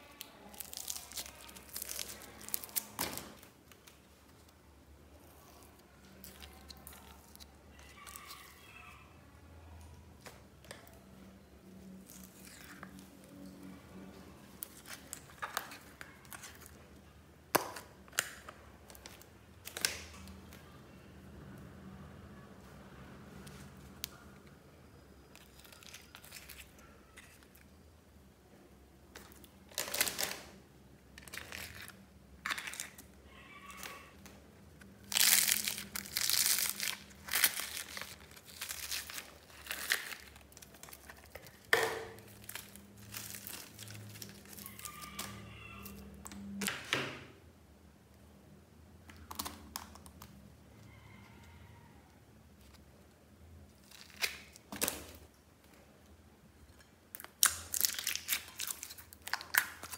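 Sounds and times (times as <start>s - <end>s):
plastic crinkling and rustling: 0.0s - 9.0s, 11.7s - 16.9s, 25.3s - 27.7s, 29.1s - 46.8s, 52.5s - 55.8s, 56.7s - 59.9s.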